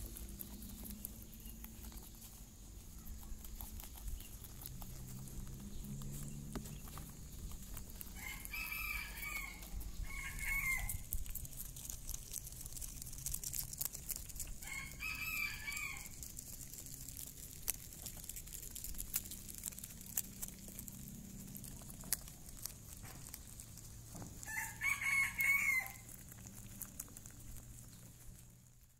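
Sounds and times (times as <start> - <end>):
rooster crowing: 8.0 - 11.1, 14.6 - 16.2, 24.4 - 26.2.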